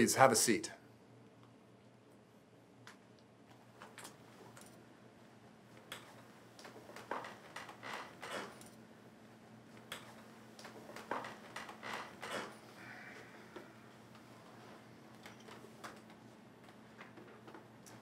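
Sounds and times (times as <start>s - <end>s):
low room hum: 0.0s - 18.0s
wooden chairs creaking: 6.0s - 8.7s, 9.9s - 17.7s.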